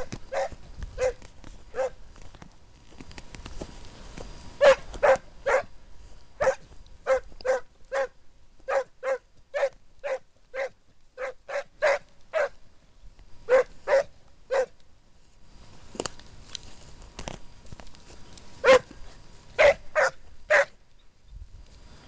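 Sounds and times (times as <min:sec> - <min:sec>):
hound barking: 0:00.0 - 0:02.0, 0:04.6 - 0:05.7, 0:06.4 - 0:12.6, 0:13.5 - 0:14.8, 0:18.6 - 0:18.9, 0:19.6 - 0:20.8.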